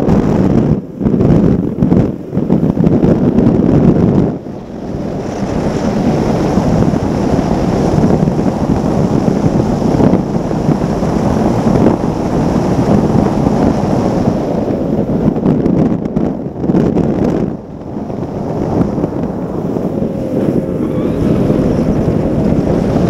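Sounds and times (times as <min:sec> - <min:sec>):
outboard engine: 0:00.0 - 0:23.0
wind rushing over microphone: 0:00.0 - 0:23.0
water spray rushing: 0:04.4 - 0:15.2.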